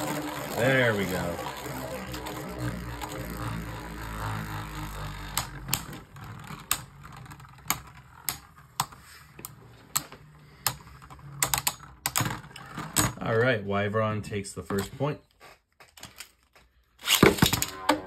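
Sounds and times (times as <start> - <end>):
spinning tops clicking: 0.0 - 9.0
spinning tops whirring: 0.0 - 13.2.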